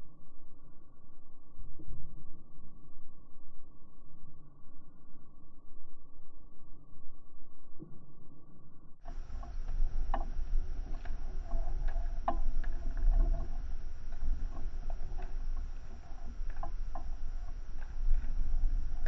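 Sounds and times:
wind rumble on microphone: 9.1s - 19.0s.

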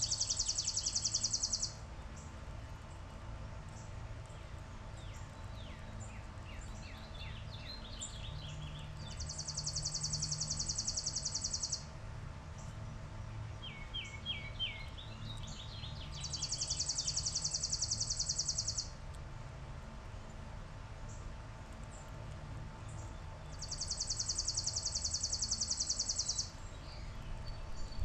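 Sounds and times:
sparrow trilling chip notes: 0.0s - 1.8s, 9.1s - 11.8s, 16.1s - 18.9s, 23.5s - 26.5s
small birds chirping: 0.0s - 2.3s, 3.7s - 11.9s, 12.5s - 18.9s, 22.8s - 28.0s.

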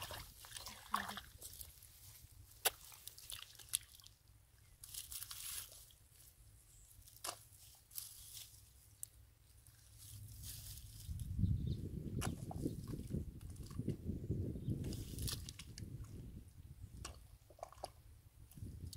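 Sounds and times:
hands squelching in wet mud: 0.0s - 6.3s, 14.8s - 16.0s
sharp wet clicks and smacks: 2.6s - 4.1s.

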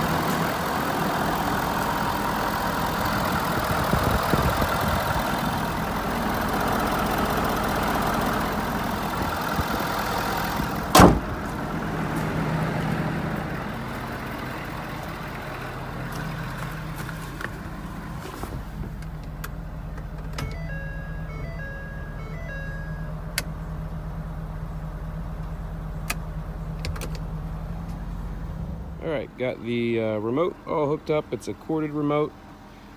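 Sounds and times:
diesel engine idling: 0.0s - 32.9s
hood slamming shut: 10.9s - 11.5s, 18.4s - 20.8s
electronic chime beeps: 20.4s - 23.2s.

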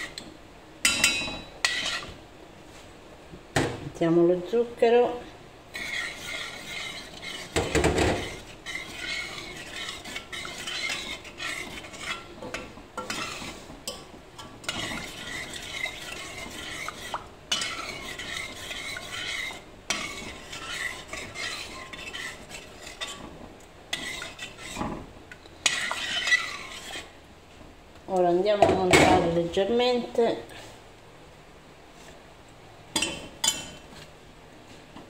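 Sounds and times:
spoon scraping a metal pot: 0.0s - 2.2s, 5.7s - 27.2s.

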